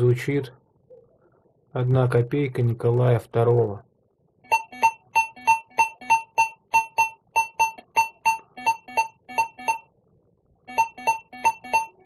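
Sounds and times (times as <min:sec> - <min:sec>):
metal detector short beeps: 0:04.5 - 0:09.9, 0:10.7 - 0:12.0.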